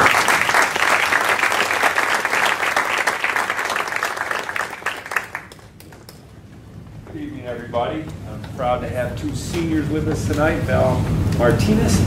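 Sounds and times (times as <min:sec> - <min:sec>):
people clapping: 0:00.0 - 0:06.4.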